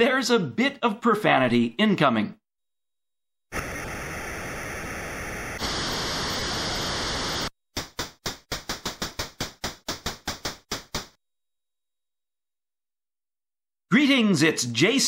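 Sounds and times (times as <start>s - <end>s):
static hiss: 3.5s - 7.5s.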